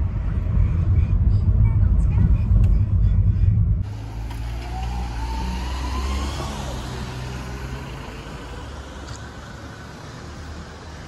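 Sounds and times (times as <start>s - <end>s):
traffic rumble: 0.0s - 11.0s
vehicle engine passing: 3.8s - 11.0s.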